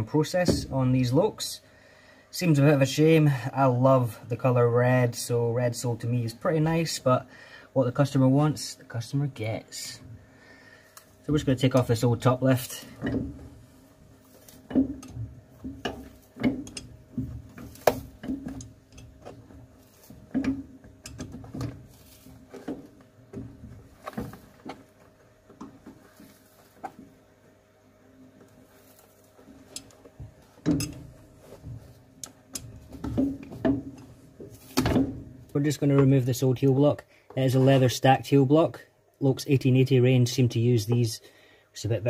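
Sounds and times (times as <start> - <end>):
pincers prying heel clicks and creaks: 14.7 - 16.9.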